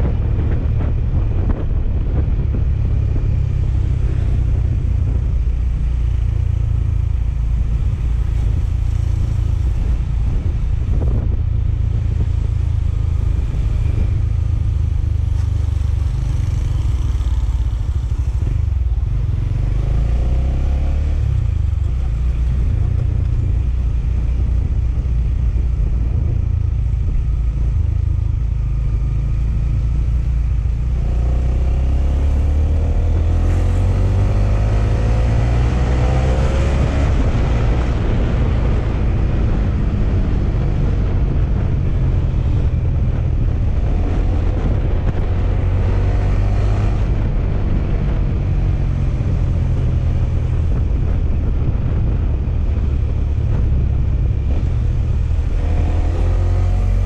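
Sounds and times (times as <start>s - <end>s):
motorcycle engine: 0.0s - 57.0s
wind rumble on microphone: 0.0s - 57.0s.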